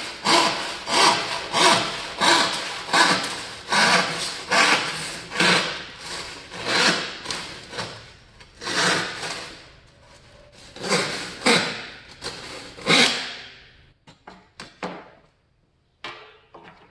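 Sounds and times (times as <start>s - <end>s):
handsaw cutting board: 0.0s - 8.0s, 8.6s - 9.6s, 10.6s - 13.5s.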